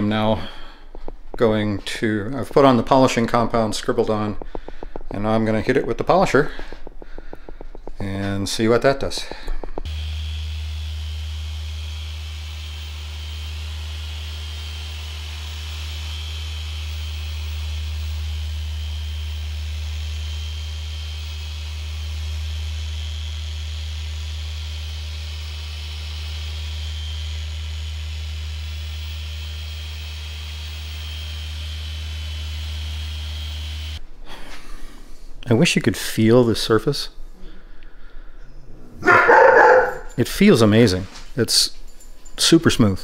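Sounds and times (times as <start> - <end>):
electric polisher whining: 0.0 - 8.0, 9.1 - 34.0.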